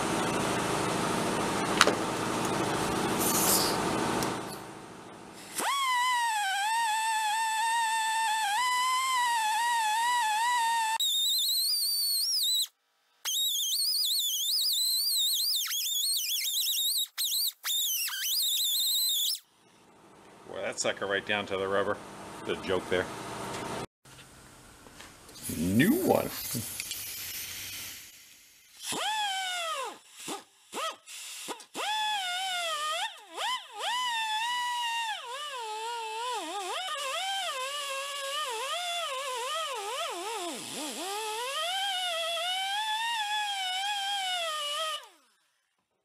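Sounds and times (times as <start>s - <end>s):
die grinder whining on steel: 31.7s - 45.1s.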